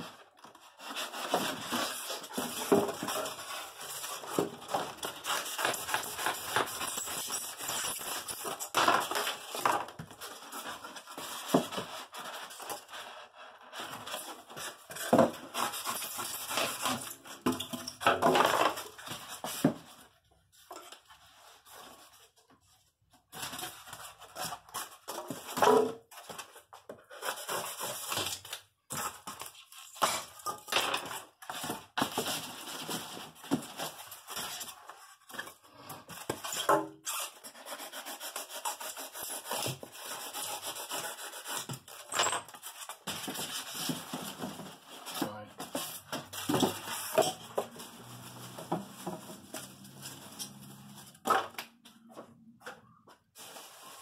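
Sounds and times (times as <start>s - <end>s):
foam squeaking against cardboard: 36.4s - 41.7s
rustling: 53.4s - 54.0s.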